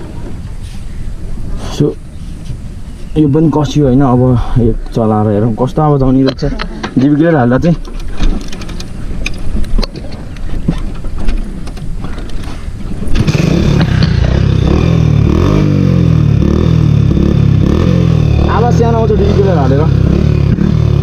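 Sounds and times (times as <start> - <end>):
motorcycle engine revving: 13.1 - 21.0.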